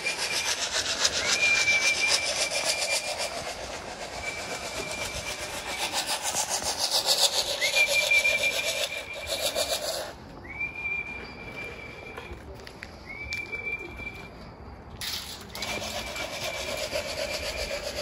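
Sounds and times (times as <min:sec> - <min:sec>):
rasping rattle: 0:00.0 - 0:10.1, 0:15.0 - 0:18.0
high whistle: 0:00.0 - 0:18.0.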